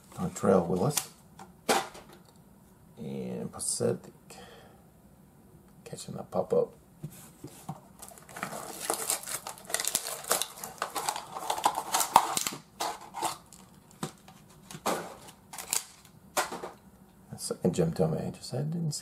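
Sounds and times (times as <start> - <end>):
packaging crinkling and tearing: 8.0 - 14.0, 14.7 - 16.2.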